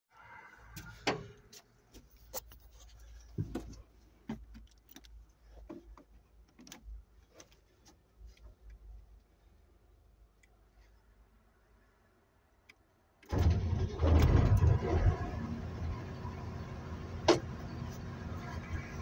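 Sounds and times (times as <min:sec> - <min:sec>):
knocks and clicks in machine cab: 0:17.2 - 0:17.6.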